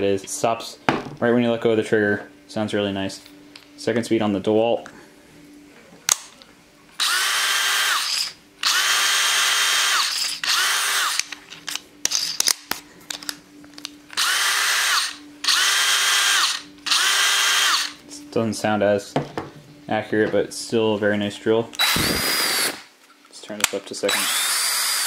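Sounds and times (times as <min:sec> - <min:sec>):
cordless drill whining: 0:07.0 - 0:11.3, 0:14.2 - 0:18.0, 0:21.8 - 0:22.8, 0:24.1 - 0:25.0.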